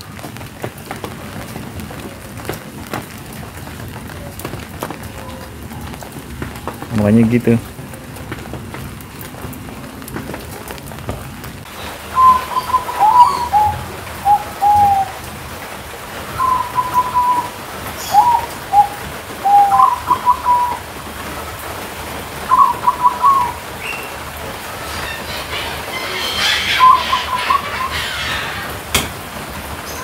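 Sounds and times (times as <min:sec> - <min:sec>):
steady rain: 0:00.0 - 0:30.0
doves cooing: 0:11.8 - 0:15.4, 0:16.2 - 0:21.3, 0:22.3 - 0:30.0.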